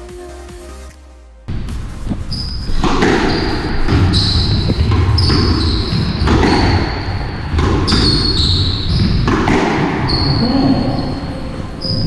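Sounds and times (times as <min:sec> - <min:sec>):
shoes squeaking on wooden floor: 0:02.0 - 0:12.0
squash ball cracking off rackets: 0:02.7 - 0:10.2.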